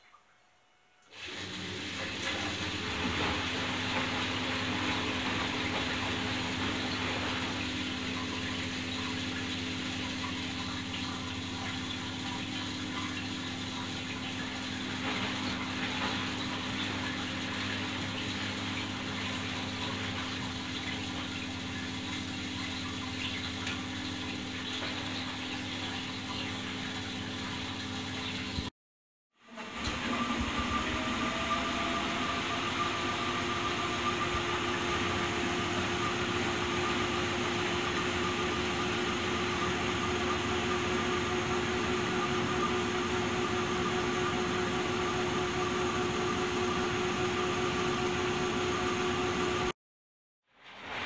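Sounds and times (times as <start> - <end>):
washing machine motor hum: 0.0 - 28.7, 29.3 - 49.8
water sloshing in washing machine: 1.0 - 28.7, 29.3 - 49.8.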